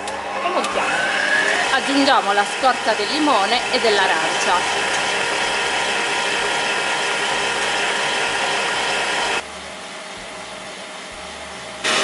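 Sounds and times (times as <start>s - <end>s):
stand mixer motor whirring: 0.0s - 9.4s.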